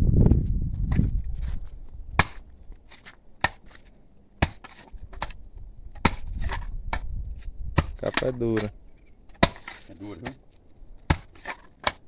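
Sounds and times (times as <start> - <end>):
digger blades chopping into clay: 2.2 - 3.8, 4.4 - 5.4, 6.0 - 7.1, 7.7 - 10.4, 11.0 - 12.0.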